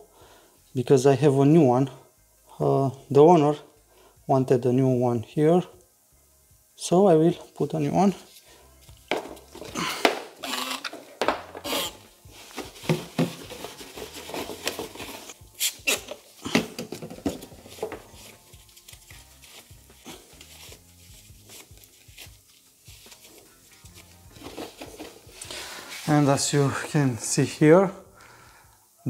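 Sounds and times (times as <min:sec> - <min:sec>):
cloth rustling: 0:09.3 - 0:15.4, 0:17.4 - 0:26.8
cloth rubbing plastic: 0:09.3 - 0:27.1
spray bottle hissing: 0:10.1 - 0:12.1, 0:15.2 - 0:16.5.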